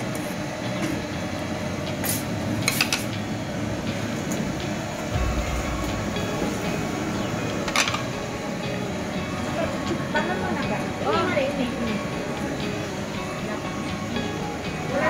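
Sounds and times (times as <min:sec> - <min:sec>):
steady rumbling background noise: 0:03.1 - 0:15.0
low thump: 0:05.1 - 0:08.4.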